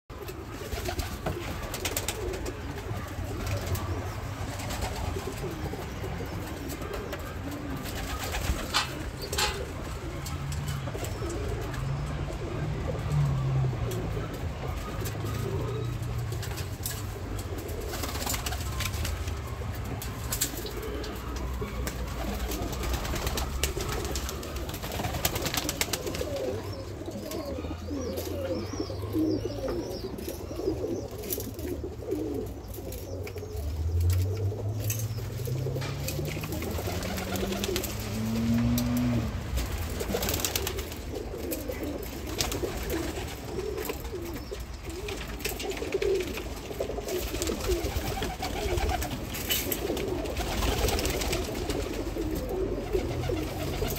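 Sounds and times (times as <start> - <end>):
pigeons cooing: 0.1 - 53.9
low hum rising in pitch: 33.7 - 39.6.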